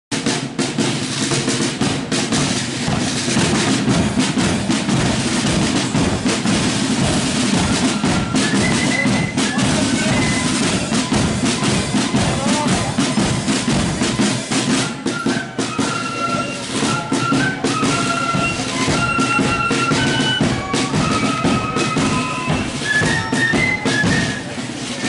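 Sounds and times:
side drums beating march rhythm: 0.1 - 25.0
short high notes: 3.2 - 25.0.

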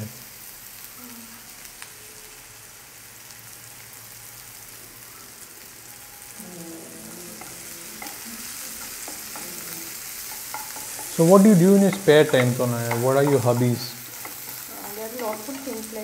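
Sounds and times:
food sizzling in oil: 0.0 - 16.0
wooden spatula stirring: 6.8 - 16.0.

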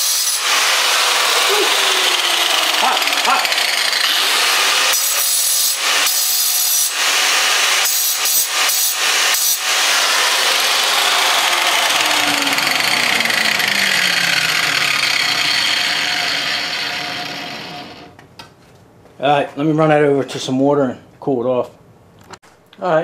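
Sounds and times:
angle grinder cutting steel: 0.0 - 18.2
grinder disc spinning down: 0.0 - 18.2.

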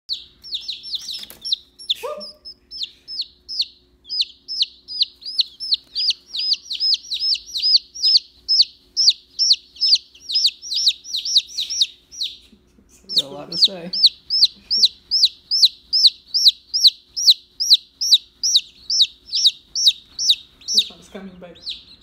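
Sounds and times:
chick peeping loudly: 0.1 - 22.0.

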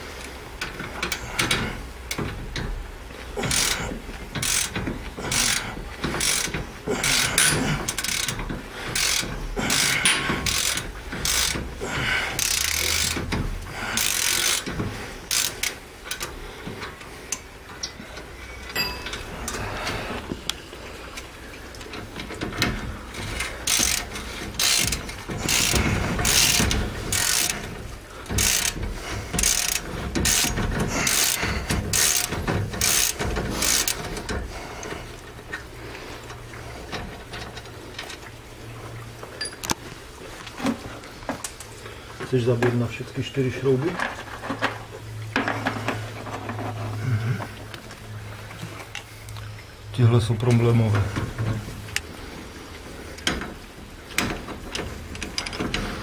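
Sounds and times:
hand ratchet clicking: 0.6 - 2.7, 3.4 - 18.0, 21.7 - 35.0.

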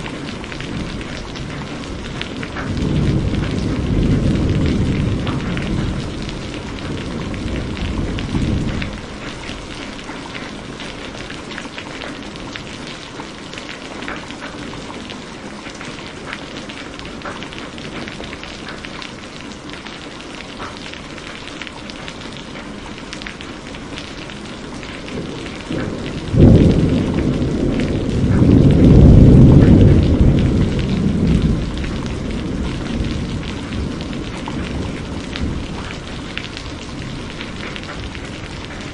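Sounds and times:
thunder crack: 0.0 - 9.2, 25.0 - 38.9
thunder rumble: 0.0 - 11.6, 24.2 - 38.9
heavy rain: 0.0 - 38.9.

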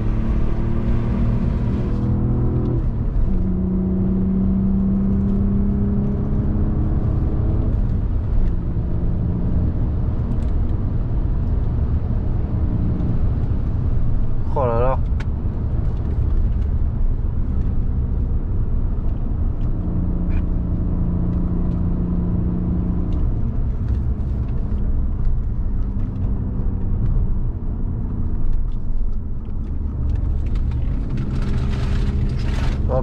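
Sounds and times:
road and tyre rumble: 0.0 - 33.0
car engine running: 9.9 - 33.0.

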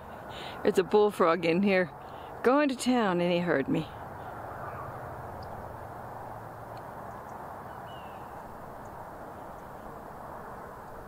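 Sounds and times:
outdoor background noise: 0.0 - 11.0
faint bird chirp: 4.2 - 5.6, 7.1 - 9.9.

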